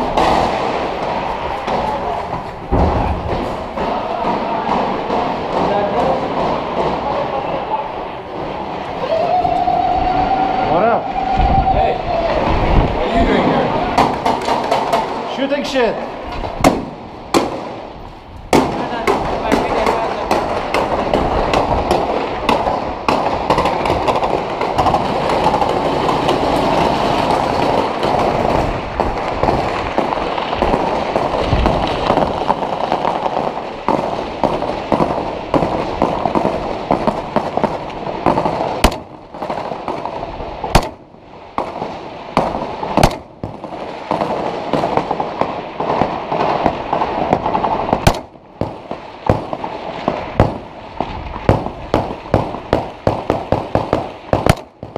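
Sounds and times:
crackle of rifle fire: 0.0s - 7.2s, 16.4s - 54.9s
loud close rifle shots: 16.6s - 17.9s, 18.5s - 50.8s, 51.4s - 54.9s.

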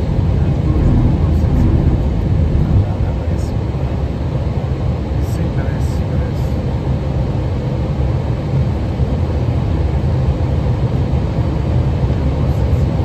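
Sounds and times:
airflow: 0.0s - 4.0s
aircraft engines droning: 0.0s - 13.0s.

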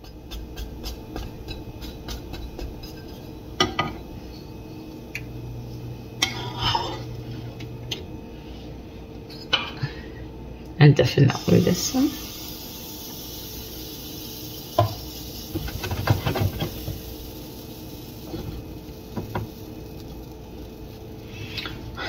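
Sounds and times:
spatula scraping frying pan: 6.2s - 7.5s.

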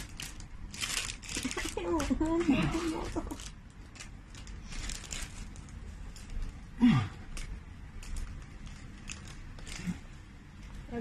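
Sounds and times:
person groaning: 6.8s - 7.2s.

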